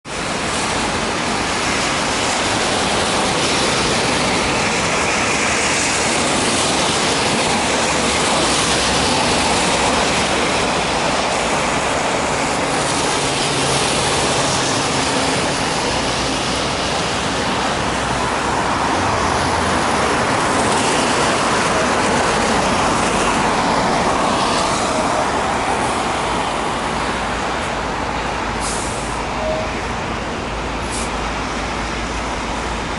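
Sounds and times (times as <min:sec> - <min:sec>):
street traffic road noise: 0:00.0 - 0:32.9.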